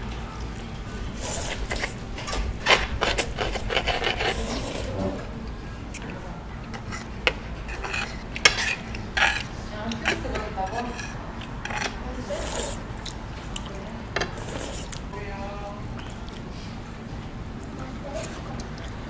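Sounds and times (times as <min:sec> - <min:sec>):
cutlery clinking against dishes: 0:06.8 - 0:12.0.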